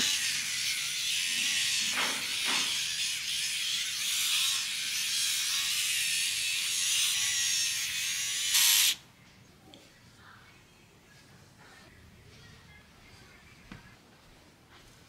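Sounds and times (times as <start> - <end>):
facial hair remover buzzing: 0.0 - 9.0.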